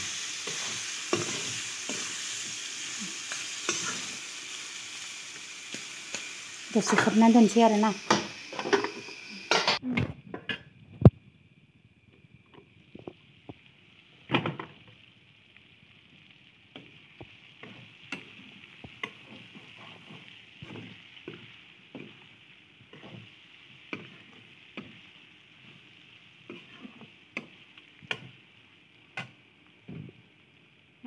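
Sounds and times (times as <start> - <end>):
metal spoon scraping a wok: 0.0 - 4.4, 26.5 - 27.1
meat sizzling in a wok: 0.0 - 9.8, 10.4 - 31.0.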